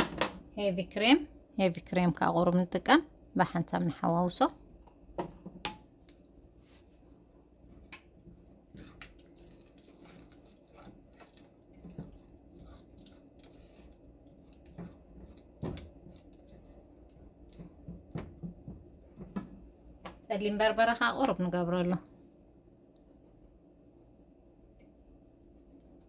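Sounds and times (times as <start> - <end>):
spatula stirring liquid in saucepan: 5.4 - 20.0.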